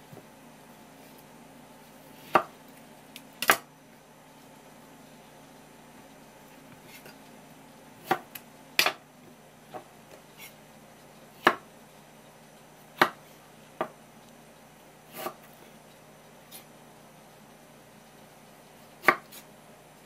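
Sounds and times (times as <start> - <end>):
knife cutting on wooden board: 15.1 - 15.7, 18.9 - 19.5.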